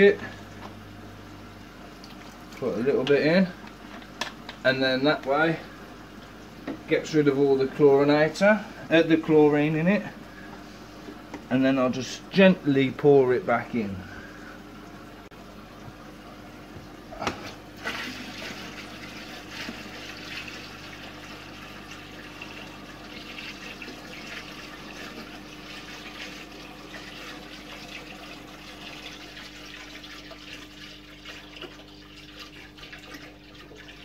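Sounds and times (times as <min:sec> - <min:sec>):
water pouring into a tank: 0:17.2 - 0:34.0.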